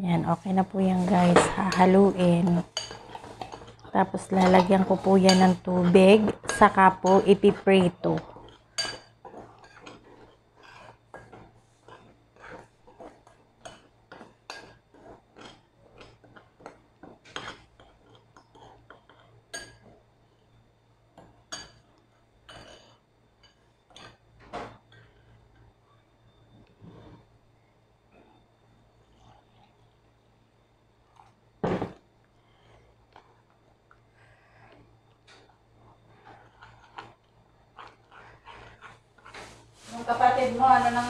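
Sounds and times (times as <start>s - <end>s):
spoon scraping in ceramic bowl: 0.9s - 15.6s.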